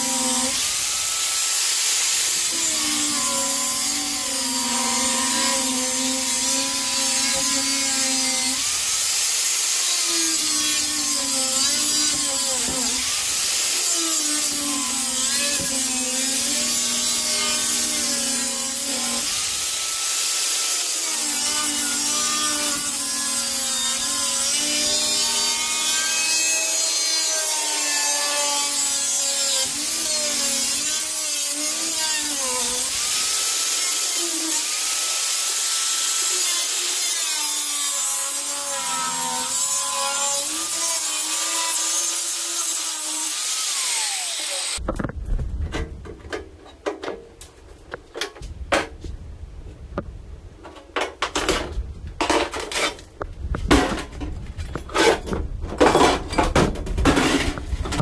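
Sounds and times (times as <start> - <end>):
power tool cutting wood: 0.0 - 44.8
debris clanking and knocking: 53.6 - 58.0.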